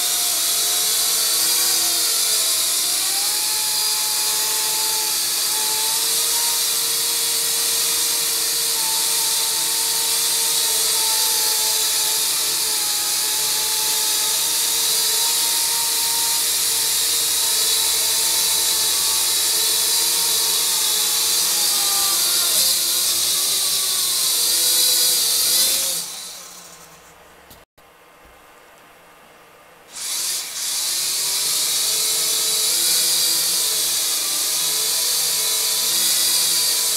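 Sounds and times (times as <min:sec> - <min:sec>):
toy drone motors whining: 0:00.0 - 0:27.2, 0:29.9 - 0:36.9.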